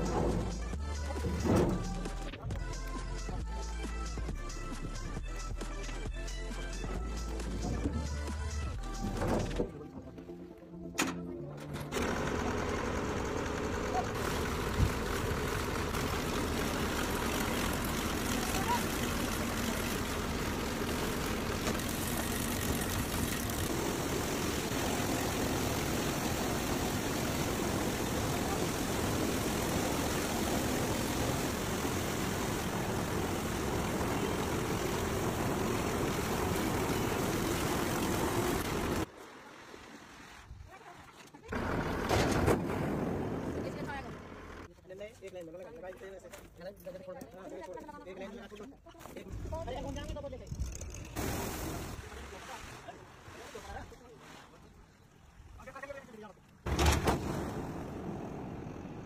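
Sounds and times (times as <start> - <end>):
machine mechanical drone: 11.5 - 39.1
water spraying: 12.1 - 40.9, 50.9 - 55.8.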